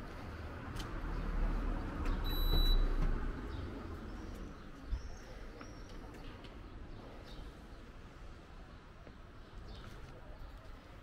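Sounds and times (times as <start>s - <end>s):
high electronic beep: 2.3s - 2.9s.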